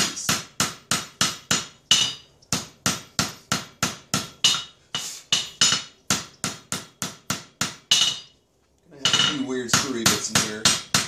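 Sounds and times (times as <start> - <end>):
hammer striking metal on anvil: 0.0 - 8.3, 9.0 - 11.0
metallic ring: 7.9 - 8.4.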